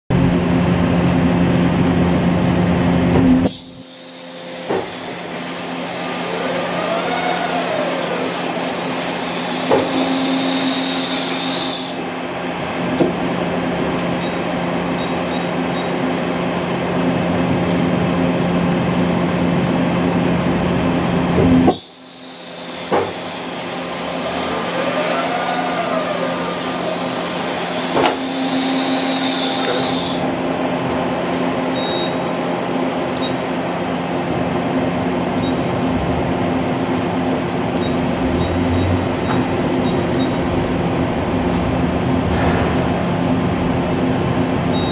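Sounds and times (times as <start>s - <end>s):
machine hum: 0.1s - 44.9s
motor whine: 3.4s - 16.3s, 21.5s - 32.3s
machine clunks: 42.2s - 43.4s.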